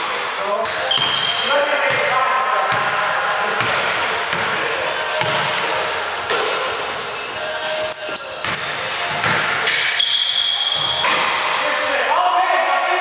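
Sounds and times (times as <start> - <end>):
sneaker squeaks: 0.6 - 2.1, 6.3 - 12.1.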